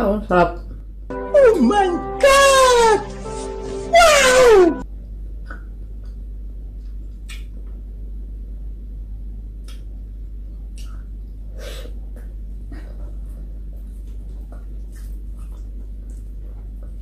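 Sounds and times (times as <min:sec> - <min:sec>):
chewing and smacking: 0:13.0 - 0:17.0.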